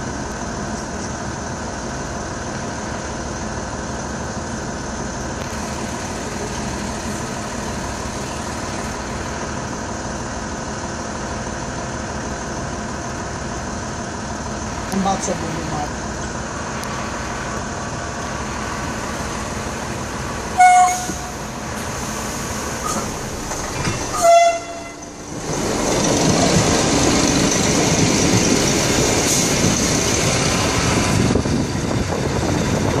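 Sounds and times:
train wheels rumbling past: 0:00.3 - 0:33.0
train horn blasts: 0:20.6 - 0:21.4, 0:24.1 - 0:25.1.

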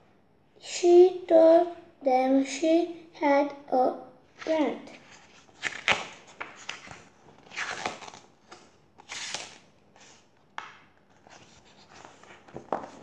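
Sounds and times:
book pages turning: 0:04.4 - 0:13.0.

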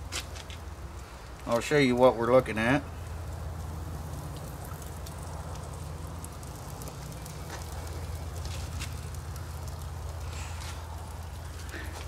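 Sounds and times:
steaks sizzling and crackling: 0:03.0 - 0:12.0.

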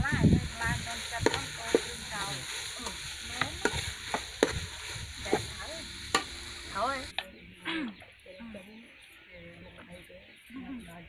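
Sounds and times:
frying sizzle: 0:00.0 - 0:07.2.

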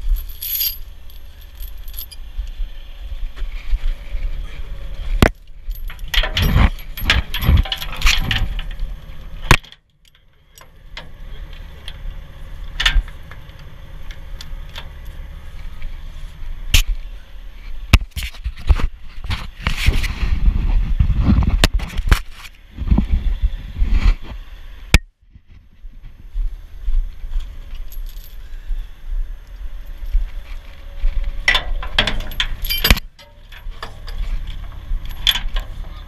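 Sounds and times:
steel chain rattling and clanking: 0:00.0 - 0:02.2, 0:05.7 - 0:08.9, 0:31.5 - 0:35.9
low steady rumble: 0:00.0 - 0:36.0.

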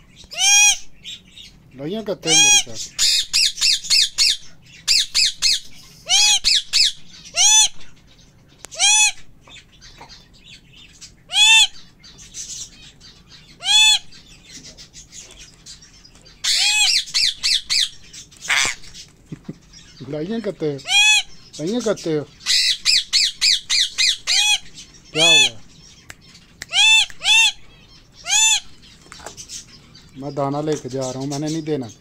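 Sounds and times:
parrot squawking: 0:00.2 - 0:01.5, 0:02.2 - 0:08.0, 0:08.7 - 0:14.6, 0:16.3 - 0:19.0, 0:20.8 - 0:30.0.

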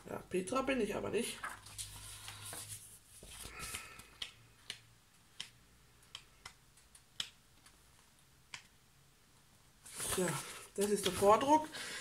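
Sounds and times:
paper rustle: 0:01.4 - 0:03.9, 0:09.8 - 0:11.6.

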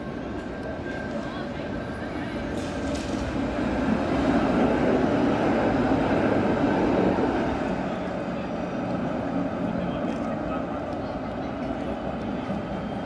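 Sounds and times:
tram rumbling past: 0:00.0 - 0:13.0.

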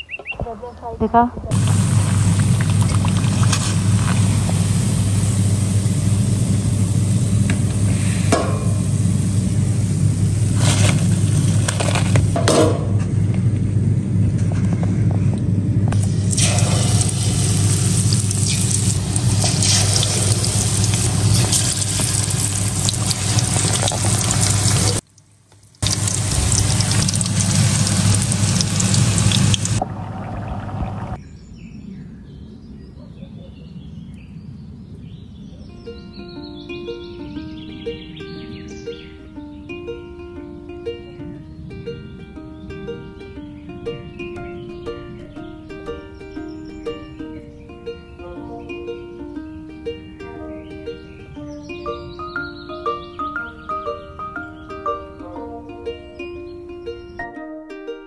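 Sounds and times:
hot oil sizzling and bubbling: 0:01.5 - 0:12.4, 0:16.0 - 0:31.2
skimmer scraping against pan: 0:18.2 - 0:25.0.

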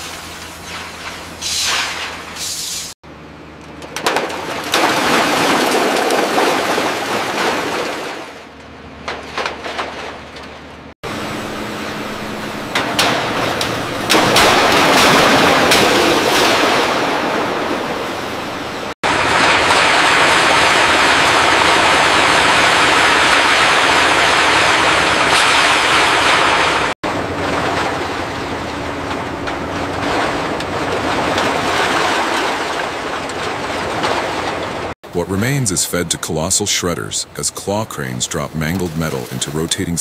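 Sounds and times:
heavy machinery working scrap metal: 0:00.0 - 0:40.0.

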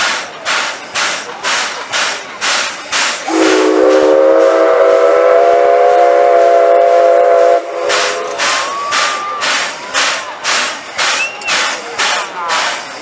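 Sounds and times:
rhythmic hissing steam puffs: 0:00.0 - 0:13.0
steam locomotive whistle blast: 0:03.2 - 0:09.8.

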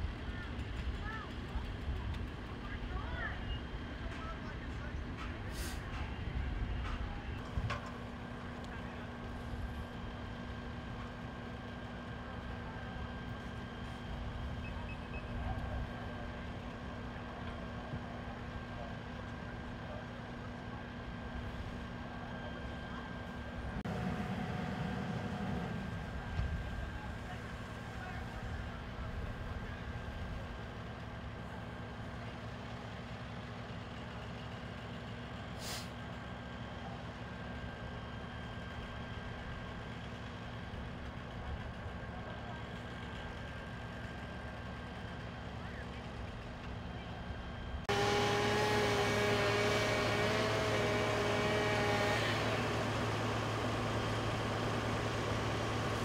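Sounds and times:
engine running with low rumble: 0:00.0 - 0:56.0
brief hiss: 0:35.6 - 0:35.9.

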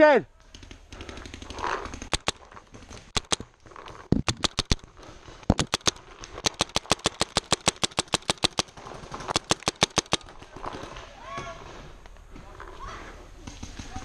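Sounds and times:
paintball marker firing: 0:00.5 - 0:03.5, 0:04.1 - 0:04.8, 0:05.5 - 0:10.4.

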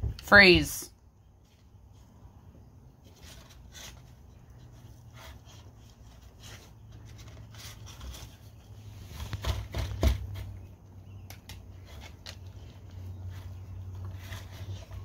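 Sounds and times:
paper rustling: 0:03.0 - 0:10.6.

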